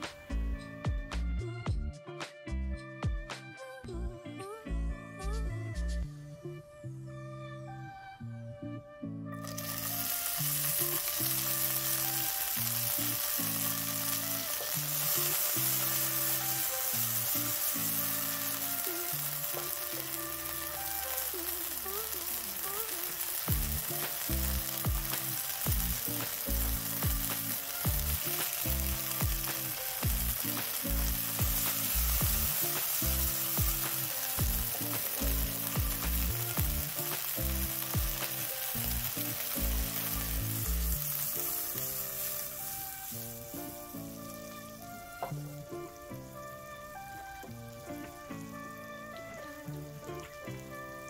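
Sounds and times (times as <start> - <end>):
food sizzling in a pan: 0.0 - 0.6, 9.4 - 51.0
background music with low beat: 0.0 - 6.5, 23.5 - 41.1.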